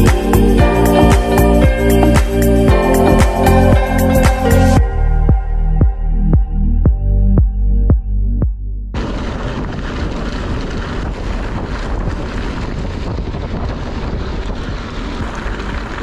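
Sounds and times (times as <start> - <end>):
short music piece: 0.0 - 8.0
wind buffeting microphone: 9.0 - 16.0.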